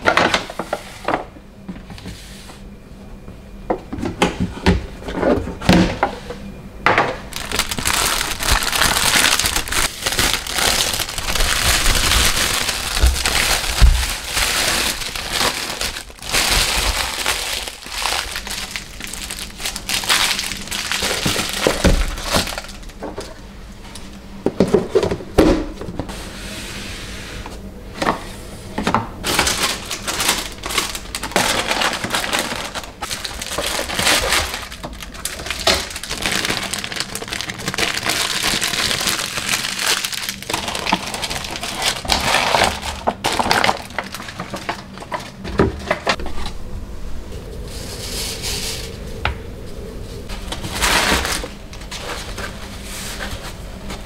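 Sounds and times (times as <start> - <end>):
plastic bags crinkling: 7.3 - 23.4, 29.2 - 46.2, 50.3 - 54.0.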